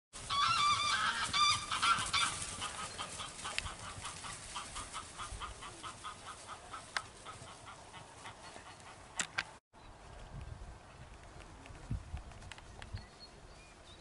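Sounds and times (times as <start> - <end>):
geese honking: 0.2 - 9.0.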